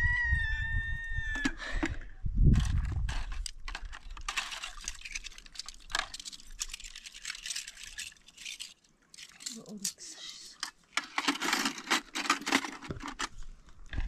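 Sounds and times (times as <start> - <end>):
scrubbing: 3.1 - 10.1
dishes clattering in plastic basins: 11.0 - 13.3.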